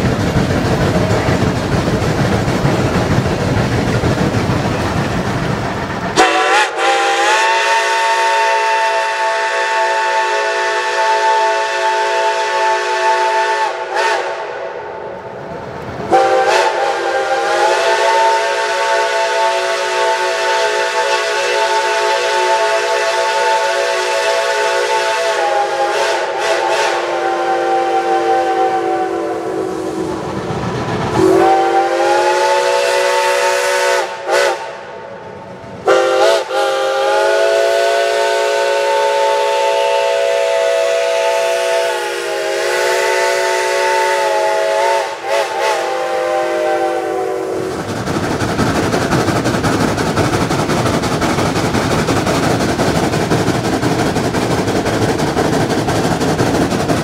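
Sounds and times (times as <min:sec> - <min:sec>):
steam rushing: 0:00.0 - 0:57.0
steam locomotive whistle: 0:06.2 - 0:14.9, 0:16.1 - 0:30.4, 0:31.2 - 0:35.1, 0:35.8 - 0:47.8.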